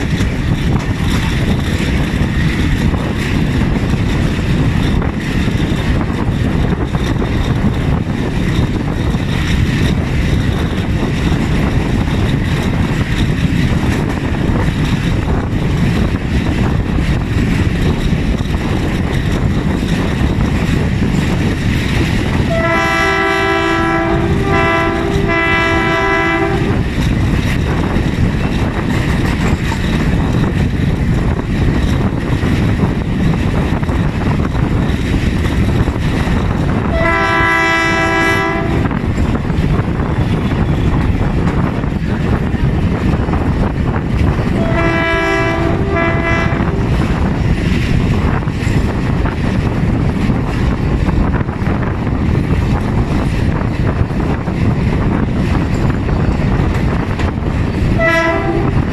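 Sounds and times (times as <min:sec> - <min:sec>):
diesel locomotive engine rumble: 0:00.0 - 0:58.9
train on rails: 0:00.0 - 0:58.9
locomotive horn blasts: 0:22.5 - 0:26.8, 0:36.9 - 0:39.0, 0:44.6 - 0:46.8, 0:58.0 - 0:58.8.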